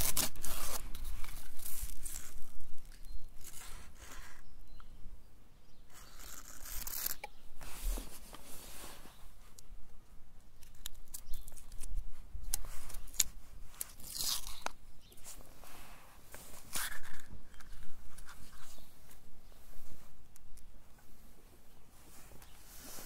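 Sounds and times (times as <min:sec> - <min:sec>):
paper wrapper tearing and crinkling: 0:00.0 - 0:04.3, 0:06.0 - 0:07.3, 0:12.7 - 0:14.7.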